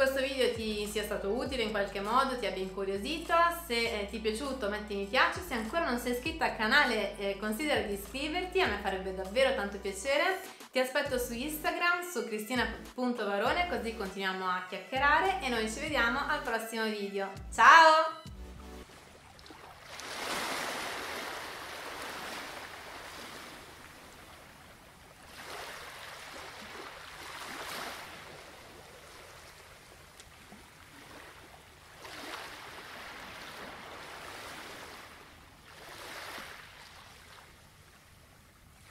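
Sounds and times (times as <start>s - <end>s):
waves breaking: 18.8s - 38.9s.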